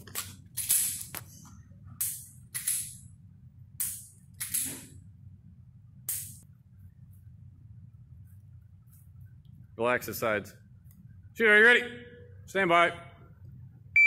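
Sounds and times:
low steady hum: 0:00.0 - 0:14.0
handgun clacks: 0:02.0 - 0:03.0.

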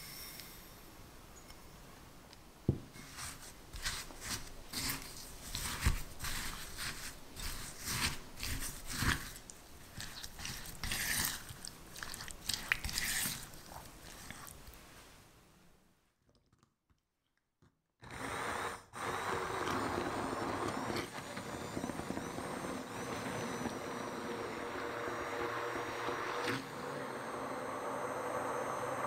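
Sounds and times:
spatula scraping in glass bowl: 0:03.0 - 0:14.6.

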